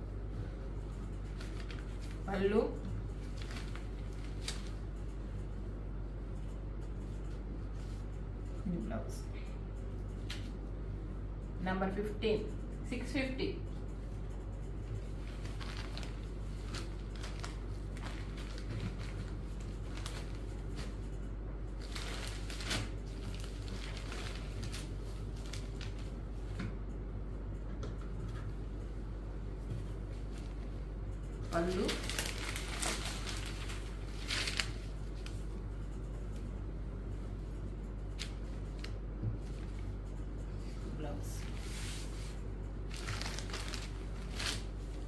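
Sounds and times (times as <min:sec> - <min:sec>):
steady low hum: 0:00.0 - 0:45.0
cloth rustling and swishing: 0:41.4 - 0:45.0.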